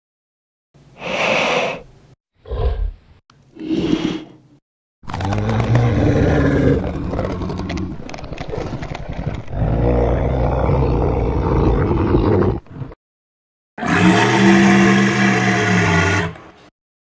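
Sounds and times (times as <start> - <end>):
monster roars: 5.1 - 8.0, 9.1 - 12.7, 13.8 - 16.4.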